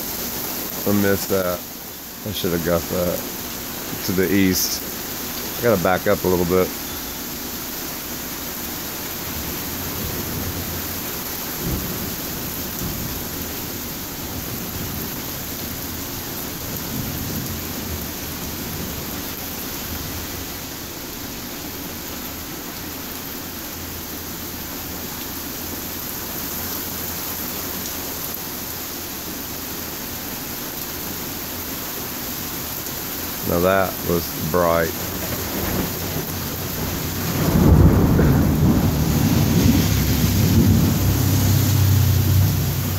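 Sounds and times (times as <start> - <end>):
rain falling: 0.0 - 42.9
thunder rumbling: 33.4 - 42.9.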